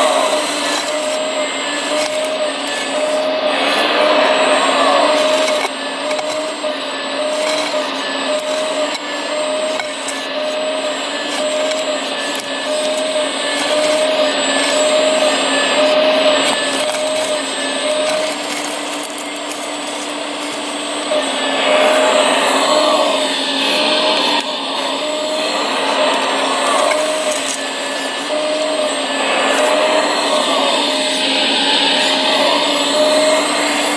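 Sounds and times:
motor whine with pulsing tone: 0.0s - 33.9s.

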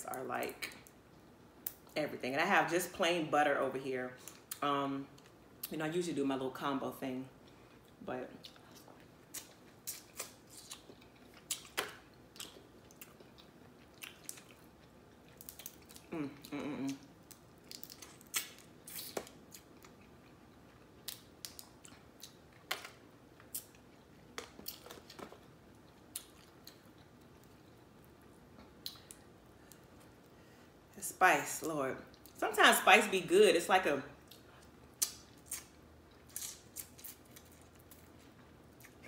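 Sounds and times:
wet chewing and smacking: 7.4s - 30.3s
person humming: 16.1s - 17.0s.

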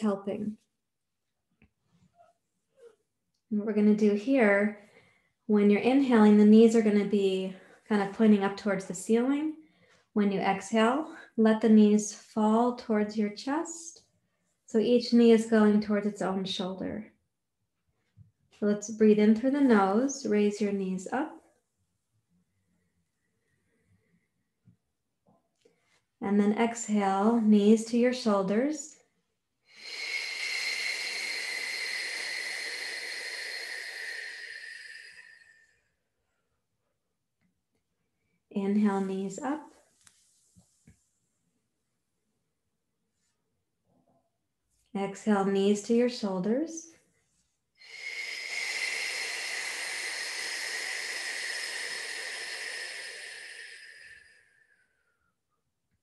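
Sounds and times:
woman exhaling slowly: 29.7s - 35.9s, 47.8s - 55.3s.

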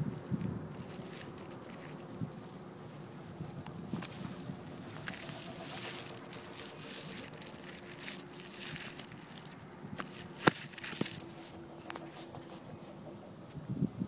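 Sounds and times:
grass rustling and crackling: 0.0s - 13.6s
faint steady hum: 0.0s - 14.0s.

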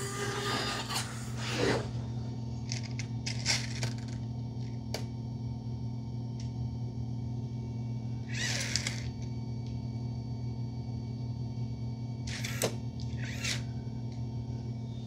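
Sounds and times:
whirring squeal: 0.0s - 2.3s, 12.3s - 15.0s
robot vacuum motor hum: 0.0s - 4.2s, 8.2s - 9.3s, 12.2s - 13.8s.

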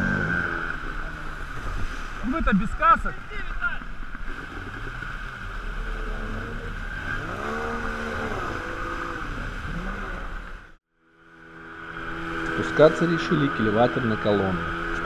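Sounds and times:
water rushing: 0.0s - 15.0s
outboard motor running: 3.1s - 15.0s.

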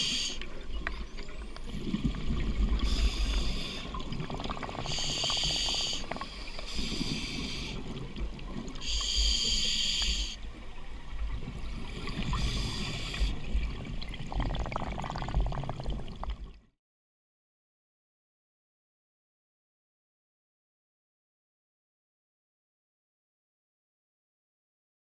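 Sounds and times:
low rumble of water: 0.0s - 16.8s
exhaled bubbles underwater: 1.4s - 10.4s, 11.0s - 16.7s.

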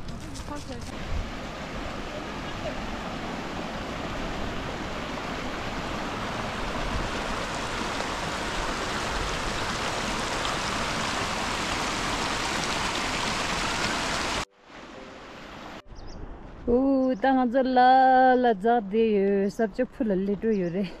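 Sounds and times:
stream water rushing: 0.9s - 15.8s.

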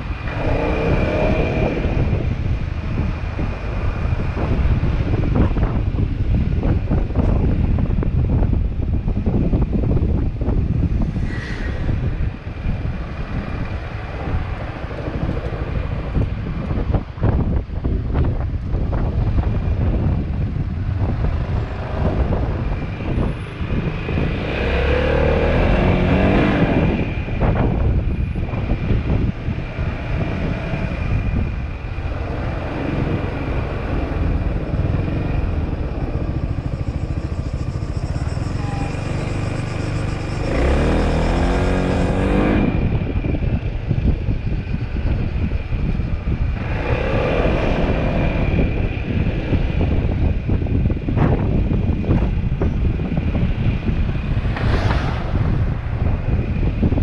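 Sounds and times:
wind rushing over microphone: 0.0s - 57.0s
motorcycle engine accelerating: 28.6s - 57.0s.

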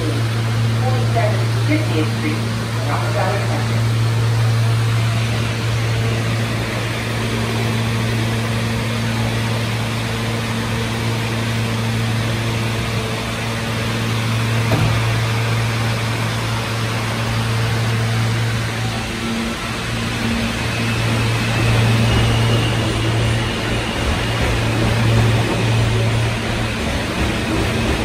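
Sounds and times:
subway wheels rumbling on rail: 0.0s - 28.0s.

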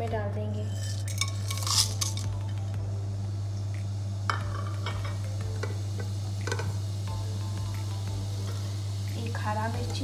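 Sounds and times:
spices rattling in metal pot: 0.5s - 2.6s.

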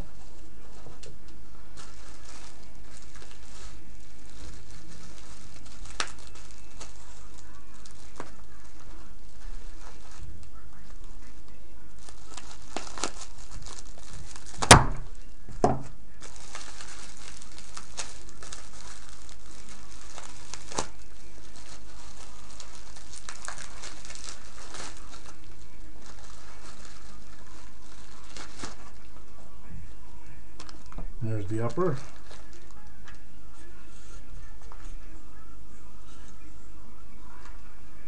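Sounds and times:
bubble wrap snap: 0.0s - 29.1s, 30.6s - 31.0s
bubble wrap crinkling: 0.0s - 38.0s.

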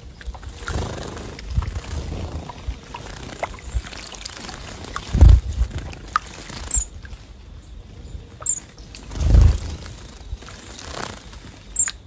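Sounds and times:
water splashing: 0.0s - 7.2s
wings fluttering: 0.0s - 7.4s, 8.4s - 12.0s
high bird chirps: 8.4s - 9.1s, 11.7s - 12.0s.

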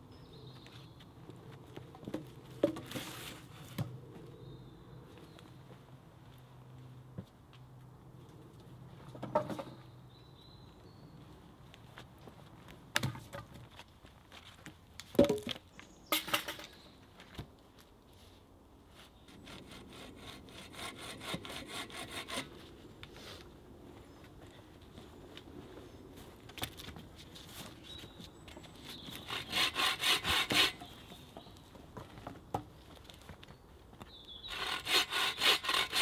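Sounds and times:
logs knocking on log pile: 9.1s - 9.8s, 12.9s - 13.6s, 15.1s - 16.7s
wood scraping on wood: 28.8s - 31.5s, 34.5s - 36.0s.

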